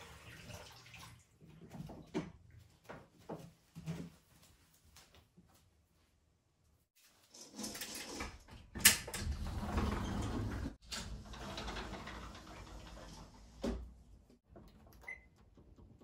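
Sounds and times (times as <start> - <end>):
curtains sliding on rails: 7.1 - 14.1
sliding glass door: 7.3 - 14.4.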